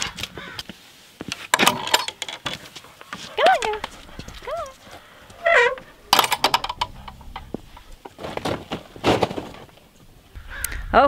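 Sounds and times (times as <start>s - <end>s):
wooden gate knocking and rattling: 1.5s - 2.6s, 5.4s - 9.6s
bird calling: 3.4s - 6.2s, 10.3s - 11.0s.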